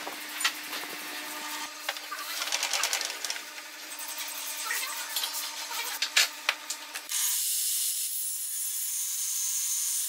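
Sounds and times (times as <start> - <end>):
table saw cutting wood: 3.8 - 10.0.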